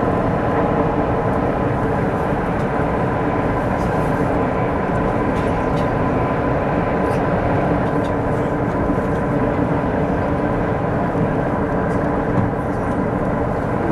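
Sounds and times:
train cabin rumble: 0:00.0 - 0:13.9.

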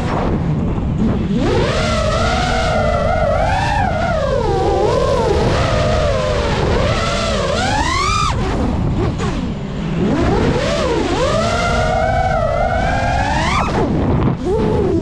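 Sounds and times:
drone motors whining: 0:00.0 - 0:15.0
wind rumble on microphone: 0:00.0 - 0:15.0.

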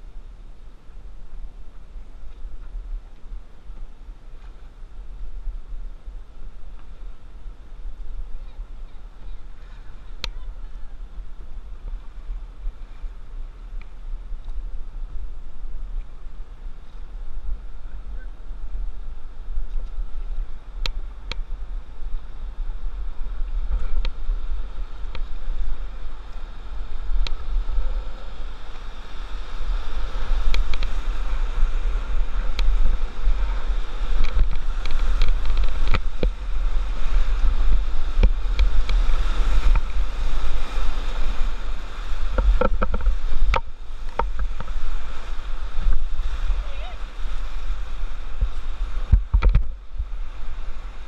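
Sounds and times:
wind rumble on microphone: 0:00.0 - 0:51.0
rushing whitewater: 0:21.5 - 0:51.0.

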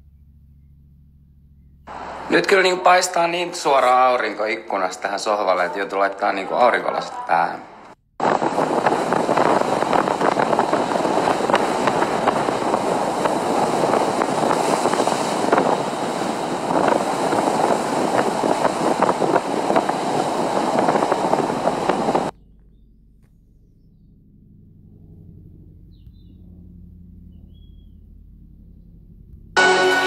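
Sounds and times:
waves splashing over rocks: 0:08.2 - 0:22.2.

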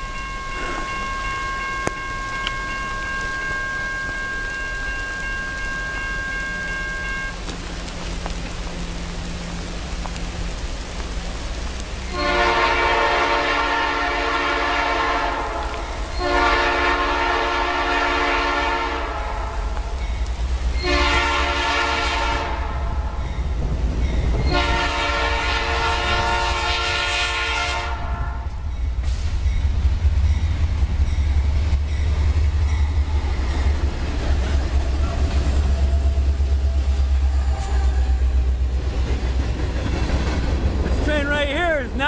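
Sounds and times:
low rumble of train: 0:00.0 - 0:42.0
locomotive air horn blasts: 0:12.1 - 0:19.8, 0:20.8 - 0:23.2, 0:24.5 - 0:28.6.

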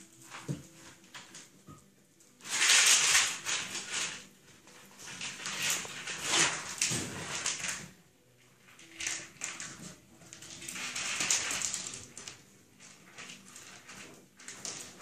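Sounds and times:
puppies scuffling with toy: 0:02.4 - 0:08.0, 0:08.8 - 0:15.0.

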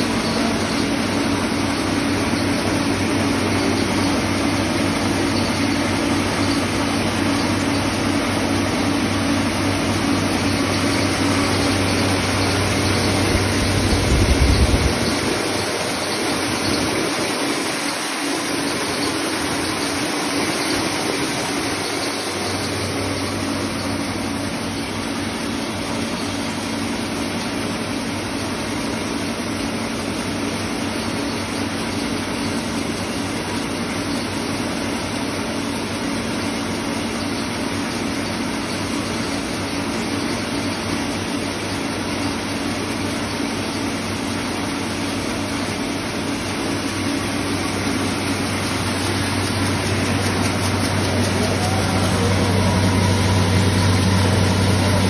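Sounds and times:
low machine hum: 0:00.0 - 0:29.3, 0:38.6 - 0:55.0
grinding machine running: 0:00.0 - 0:55.0.

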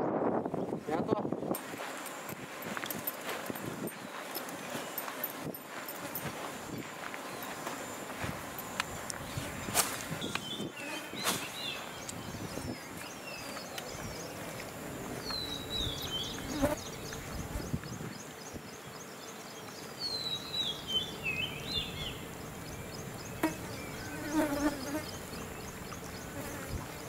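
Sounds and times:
insects buzzing: 0:00.1 - 0:27.0.

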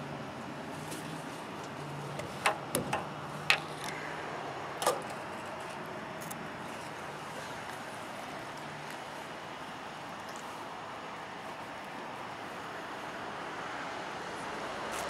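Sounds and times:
sharp knocks and clicks: 0:02.2 - 0:04.0.

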